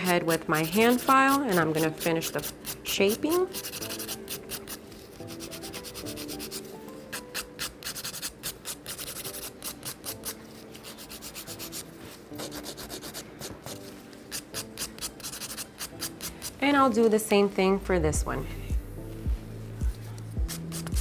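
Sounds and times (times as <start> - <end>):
nail file rasping on nail: 0.0 - 16.6, 20.4 - 21.0.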